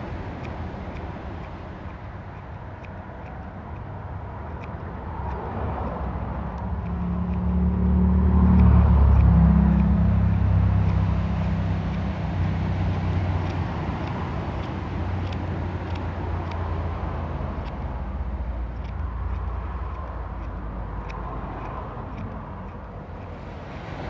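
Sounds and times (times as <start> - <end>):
trimmer ticks cutting beard: 0.0 - 24.0.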